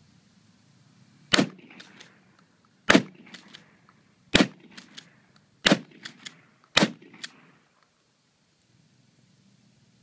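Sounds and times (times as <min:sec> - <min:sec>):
shotgun blasts: 0:01.3 - 0:02.2, 0:02.9 - 0:07.6.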